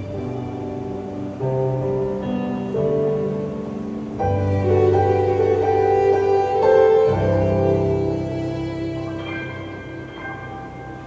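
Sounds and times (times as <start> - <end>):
bowed violin melody: 0.0 - 1.4, 4.2 - 11.0
piano chords: 0.0 - 11.0.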